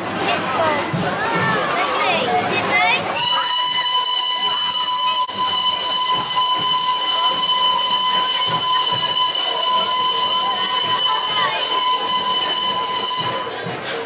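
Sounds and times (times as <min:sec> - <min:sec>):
steam engine whistle blast: 0:03.2 - 0:13.7.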